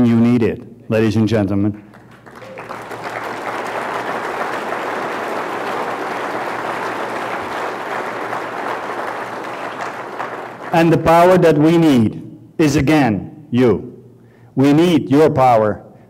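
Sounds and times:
audience applauding: 1.9 - 11.1.

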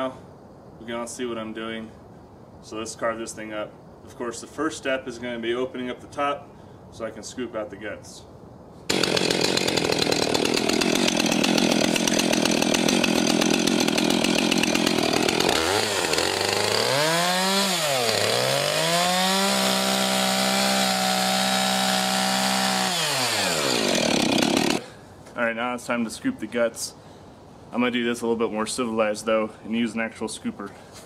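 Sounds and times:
chainsaw cutting: 8.9 - 24.9.

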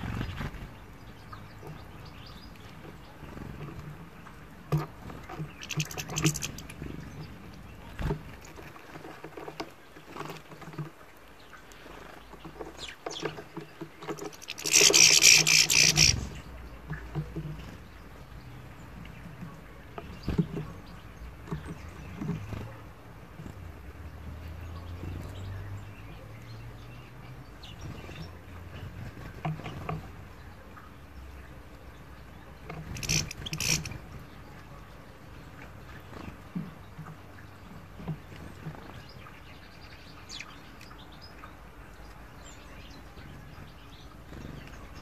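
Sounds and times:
birds pecking seeds clicks: 0.0 - 18.4, 32.6 - 34.5
bird cracking seeds: 4.8 - 6.9, 14.0 - 16.4, 32.7 - 34.0
faint bird chirps: 5.1 - 8.6, 24.4 - 45.0.

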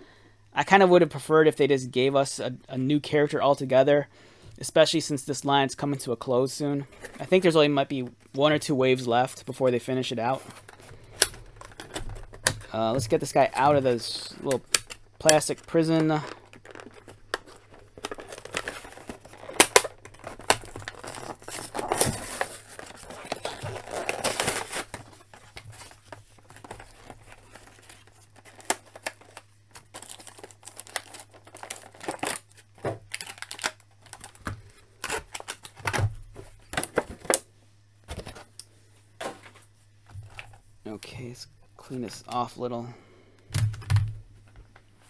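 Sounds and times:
plastic packaging tearing and crinkling: 10.4 - 12.6, 13.2 - 37.4.

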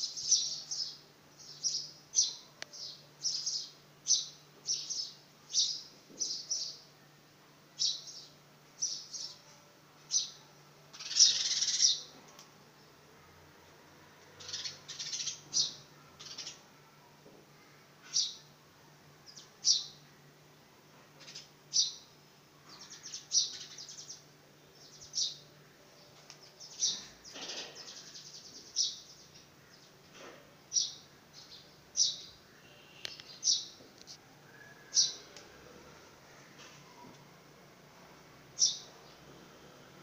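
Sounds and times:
sparrow chirping: 0.0 - 6.8, 11.0 - 12.1, 14.4 - 16.6, 21.2 - 22.1, 26.6 - 29.4, 30.7 - 33.8, 38.6 - 38.9.

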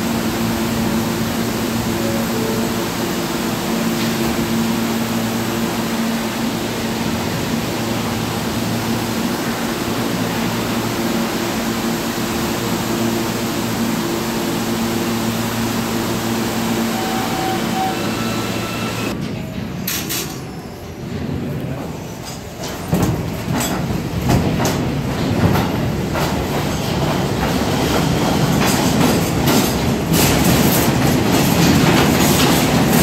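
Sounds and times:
subway train rushing: 0.0 - 33.0.

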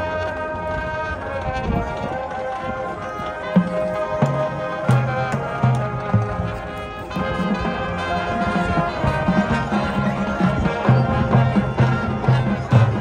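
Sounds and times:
marching band playing: 0.0 - 13.0.

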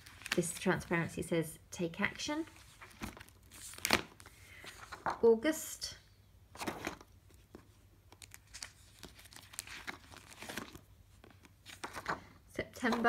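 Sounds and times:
plastic sheets crinkling: 0.0 - 1.3, 2.4 - 5.1, 6.6 - 13.0.

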